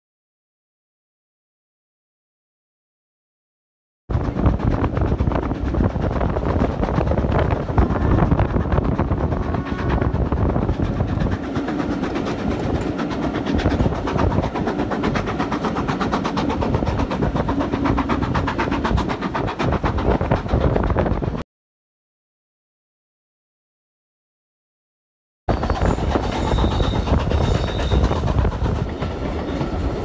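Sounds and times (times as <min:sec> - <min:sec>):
train wheels rumbling on rails: 0:04.1 - 0:21.4, 0:25.5 - 0:30.0.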